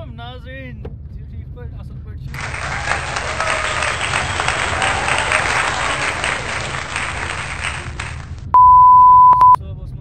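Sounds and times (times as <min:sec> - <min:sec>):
crowd applauding: 0:02.3 - 0:08.5
loud steady single-tone beep: 0:08.5 - 0:09.6.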